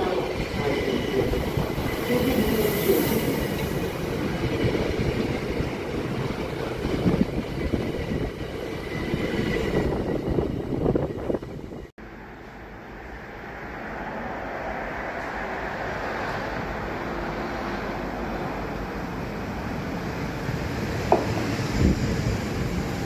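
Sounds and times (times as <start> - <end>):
train wheels rumbling on rails: 0.0 - 11.9, 14.6 - 23.0
high train whine: 0.0 - 23.0.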